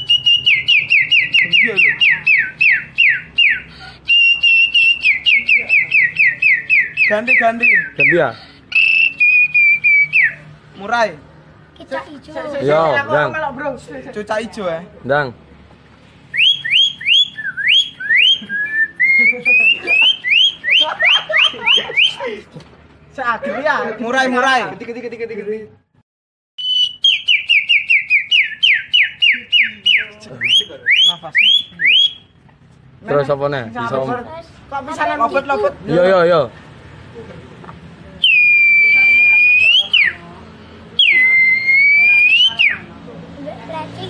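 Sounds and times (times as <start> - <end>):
boy whistling bird-song imitation: 0.0 - 10.5, 16.3 - 22.2, 26.6 - 32.4, 38.2 - 40.2, 41.0 - 42.9.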